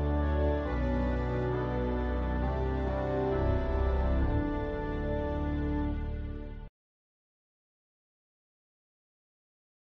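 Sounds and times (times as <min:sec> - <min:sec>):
sustained chords background music: 0:00.0 - 0:06.7.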